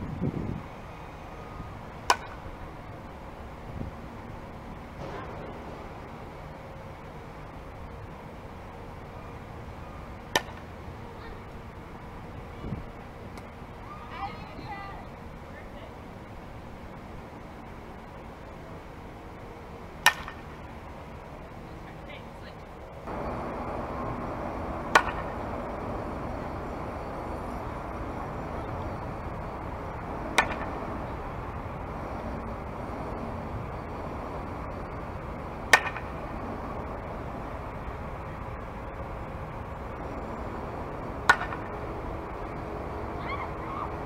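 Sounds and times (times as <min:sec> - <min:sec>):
steady background noise: 0:00.0 - 0:44.0
bat cracking softball: 0:02.0 - 0:02.5, 0:10.3 - 0:10.7, 0:20.0 - 0:20.6, 0:24.8 - 0:25.4, 0:30.3 - 0:30.9, 0:35.6 - 0:36.2, 0:41.2 - 0:41.8.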